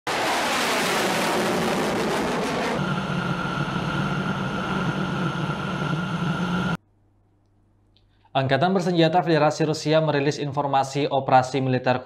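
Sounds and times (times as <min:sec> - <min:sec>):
aircraft engine drone: 0:00.1 - 0:06.8
fighter jet engine roar: 0:00.1 - 0:06.8.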